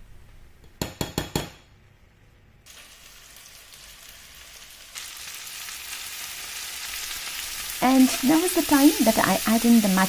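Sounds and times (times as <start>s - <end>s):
vegetables sizzling in a pan: 2.7s - 10.0s.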